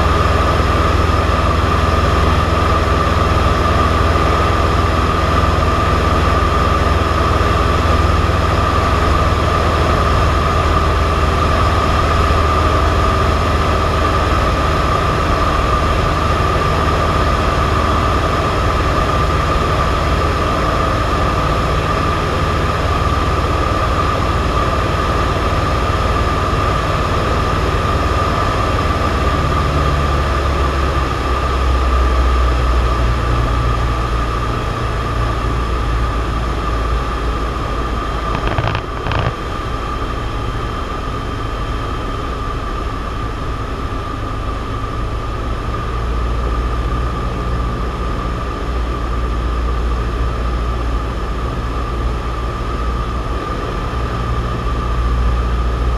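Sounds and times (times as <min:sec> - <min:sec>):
aircraft engine drone: 0:00.0 - 0:55.9.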